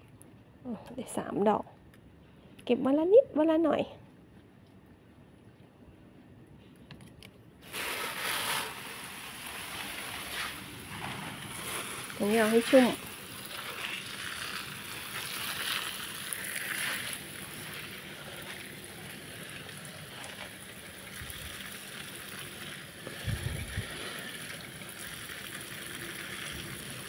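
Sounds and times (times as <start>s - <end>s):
hose nozzle spray hissing: 7.6s - 13.0s.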